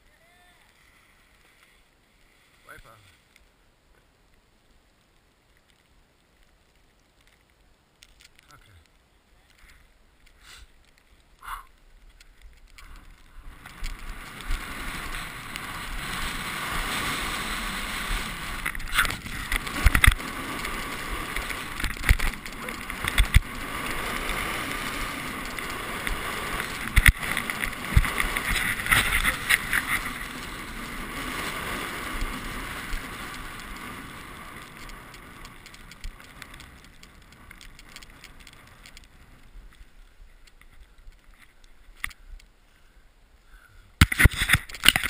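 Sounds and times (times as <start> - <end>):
skis hissing over snow: 10.3 - 10.8, 12.8 - 36.7
wind on microphone: 12.8 - 37.9.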